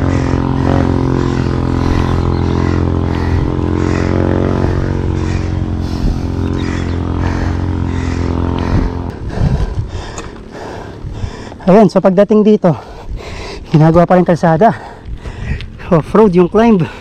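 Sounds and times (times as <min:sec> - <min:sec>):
vehicle engine running: 0:00.0 - 0:12.2.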